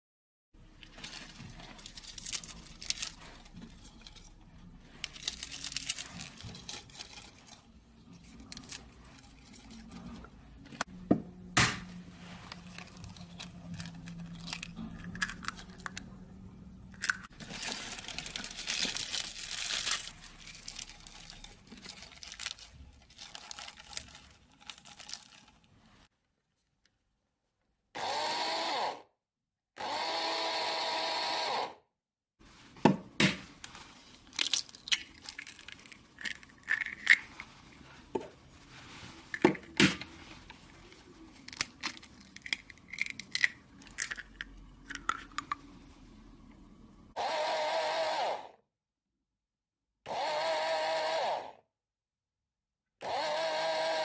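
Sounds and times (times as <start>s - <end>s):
leaves rustling in plastic bowl: 0.7s - 10.2s, 12.0s - 15.9s, 17.3s - 26.1s, 37.0s - 39.4s
electric chopper motor: 28.0s - 29.1s, 29.8s - 31.8s, 47.2s - 48.6s, 50.1s - 51.6s, 53.0s - 54.0s.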